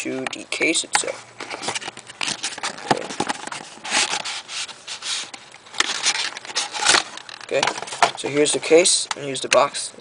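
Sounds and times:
cardboard rubbing and scraping: 1.4s - 7.1s
cardboard packaging being opened: 1.4s - 8.6s.

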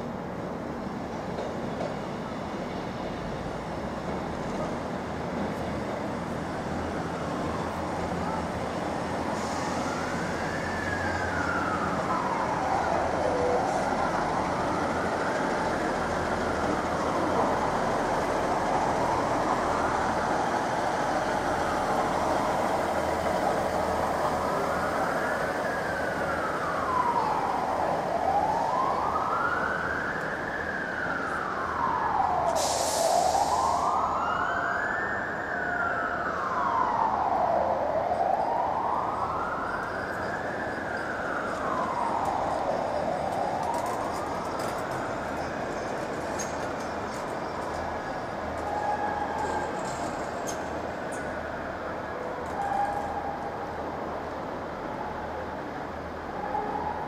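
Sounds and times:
steady background noise: 0.0s - 57.0s
siren wailing: 18.5s - 32.6s, 33.2s - 45.5s, 48.6s - 50.3s
short hiss: 32.6s - 33.7s.

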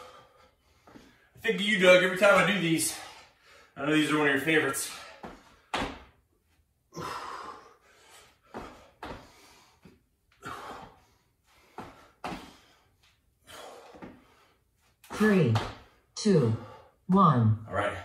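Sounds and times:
man breathing hard: 0.0s - 1.4s, 2.8s - 3.8s, 6.8s - 14.8s
sneakers thudding on wooden floor: 15.1s - 15.9s.

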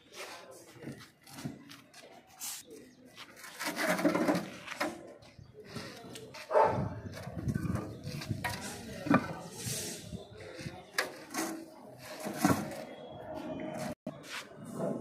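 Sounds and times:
concrete blocks knocking and scraping: 3.2s - 13.1s.

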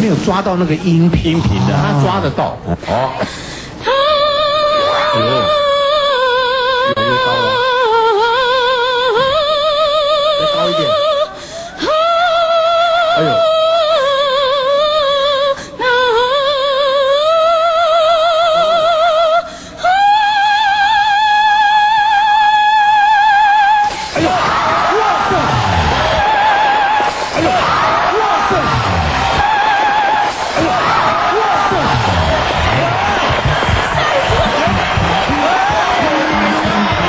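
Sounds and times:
woman breathing: 3.2s - 4.0s, 11.3s - 11.8s, 19.5s - 19.8s
woman singing operatic notes: 3.8s - 23.8s.

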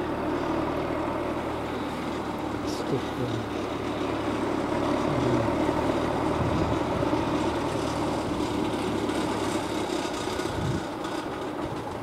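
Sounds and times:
train approaching: 0.0s - 12.0s
wind on microphone: 6.4s - 7.1s, 10.5s - 10.9s.

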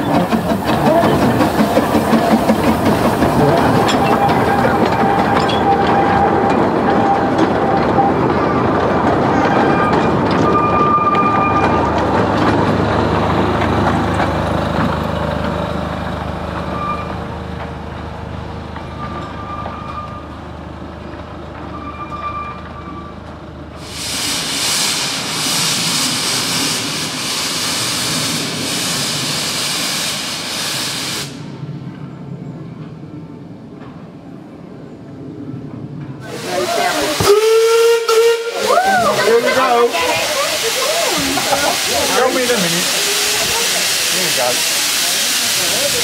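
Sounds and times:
loud steam hiss: 0.0s - 5.4s, 23.8s - 31.8s, 36.2s - 46.0s
steam locomotive rumbling past: 0.0s - 46.0s.

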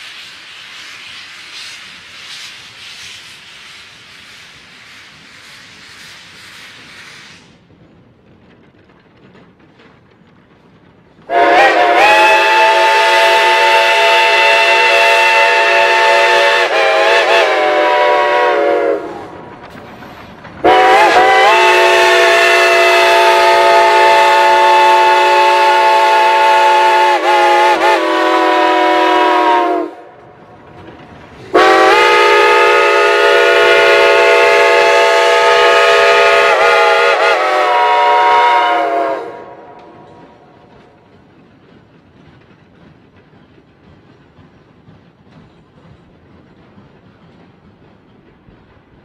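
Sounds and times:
steam whistle blasts: 11.3s - 19.4s, 20.6s - 30.1s, 31.5s - 40.4s.

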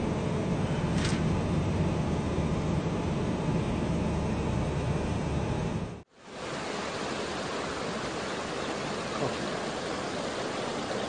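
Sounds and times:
steady rushing hiss: 6.1s - 11.0s.

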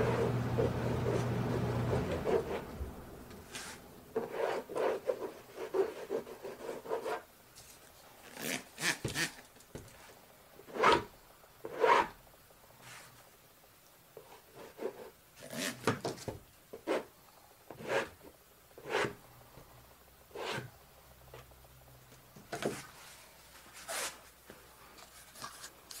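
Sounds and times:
squeegee scraping paint on canvas: 0.0s - 2.8s, 3.4s - 7.3s, 22.6s - 24.4s.

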